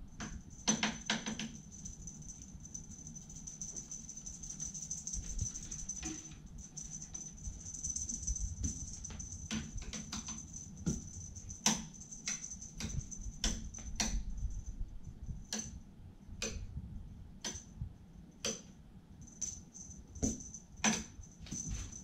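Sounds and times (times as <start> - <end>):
faint high-pitched whine: 0.0 - 22.0
toy clicks and taps: 0.2 - 2.4, 7.9 - 14.2.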